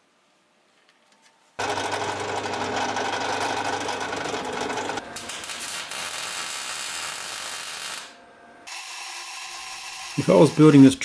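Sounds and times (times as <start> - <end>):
drill press drilling into wood: 1.6 - 5.0.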